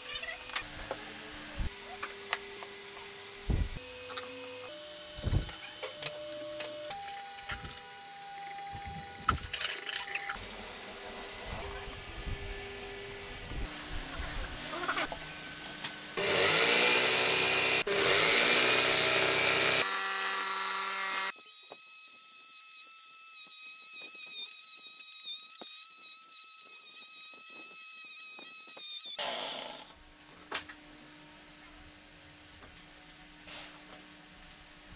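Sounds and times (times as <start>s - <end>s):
scroll saw cutting wood: 16.2s - 30.0s.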